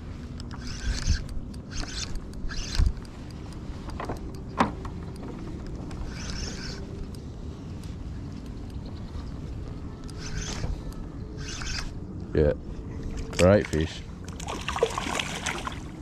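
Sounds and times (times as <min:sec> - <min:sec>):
sharp clicks: 0:00.3 - 0:08.9.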